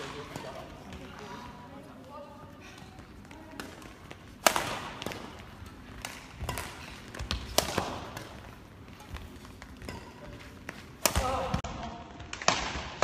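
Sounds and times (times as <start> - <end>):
racket striking shuttlecock: 3.5 - 5.4, 6.0 - 8.5, 9.6 - 11.6.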